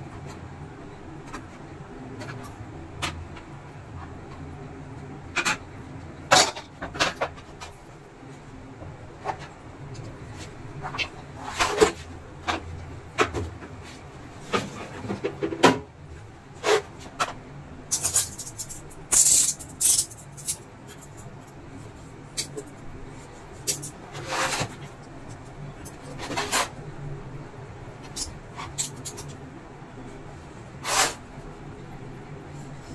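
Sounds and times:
sharp scraping clicks: 0:17.9 - 0:21.3.

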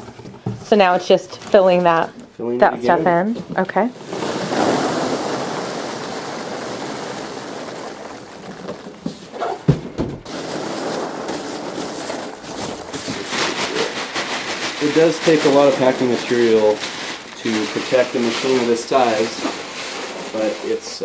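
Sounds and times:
packing peanuts pouring into box: 0:04.0 - 0:09.4, 0:10.3 - 0:21.0
short thump: 0:09.1 - 0:10.3.

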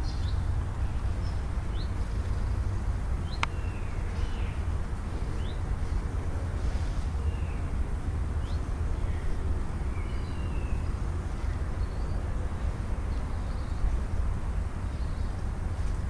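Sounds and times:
sparrows chirping: 0:00.0 - 0:16.0
steady low rumble: 0:00.0 - 0:16.0.

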